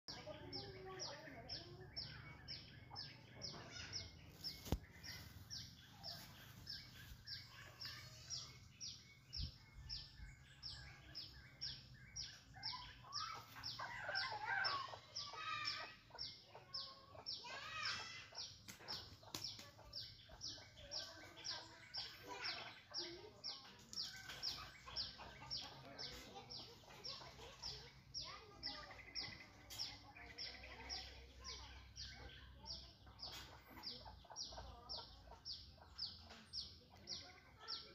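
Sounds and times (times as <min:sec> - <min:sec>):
birds chirping: 0:00.0 - 0:37.9.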